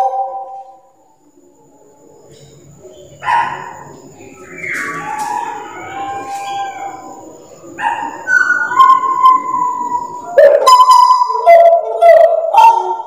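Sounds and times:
bird singing whistled notes: 0:04.1 - 0:12.4.

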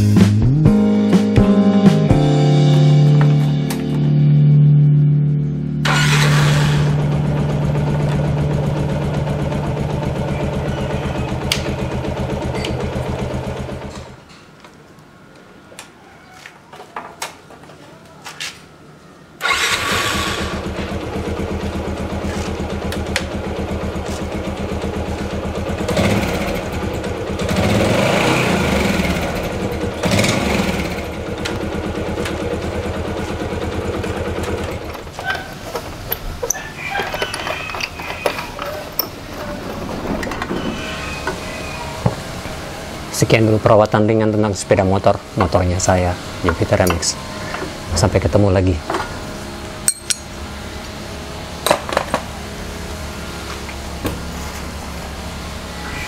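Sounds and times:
motorcycle engine idling: 0:05.9 - 0:14.2, 0:19.5 - 0:37.2.

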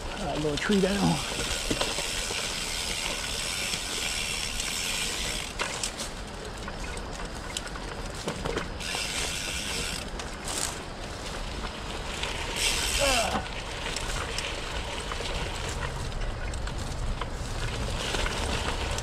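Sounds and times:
tyres and frame rumbling on trail: 0:00.0 - 0:19.0
freewheel ratchet buzzing: 0:01.0 - 0:05.8, 0:08.8 - 0:10.6.

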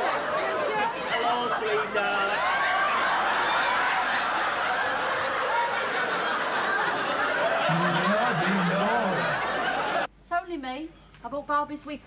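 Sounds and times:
audience laughing: 0:00.0 - 0:10.1
man's voice: 0:07.7 - 0:09.4.

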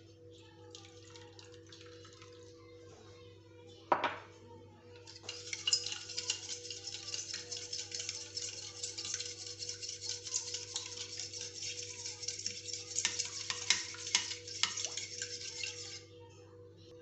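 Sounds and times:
fork clinking against bowl: 0:05.1 - 0:16.1.

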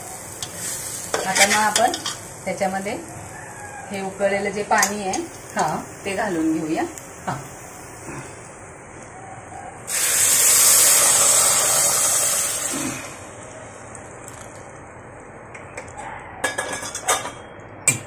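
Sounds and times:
water sizzling in hot pan: 0:00.0 - 0:08.0, 0:09.9 - 0:12.8.

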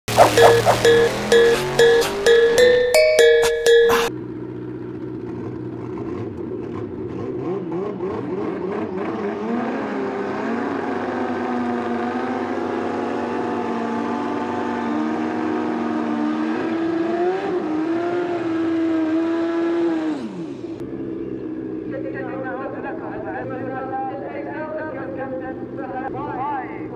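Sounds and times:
motorcycle engines revving hard: 0:04.8 - 0:21.9.

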